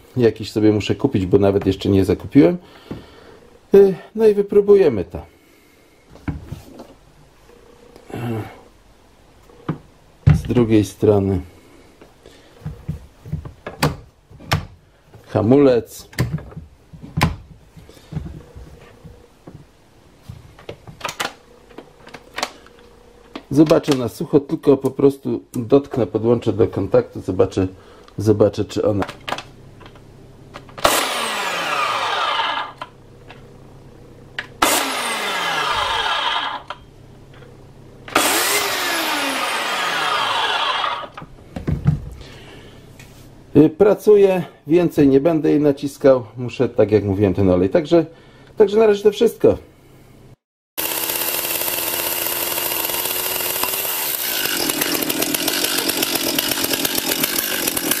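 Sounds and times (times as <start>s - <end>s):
electric chainsaw running: 30.8s - 32.9s, 34.6s - 36.8s, 38.1s - 41.2s, 50.8s - 58.0s.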